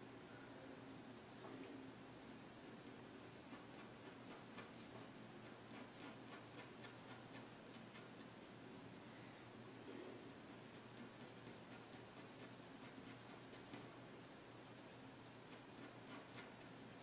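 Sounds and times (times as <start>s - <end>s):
pen ticking on paper: 2.8s - 8.3s, 10.5s - 13.9s, 15.5s - 16.8s.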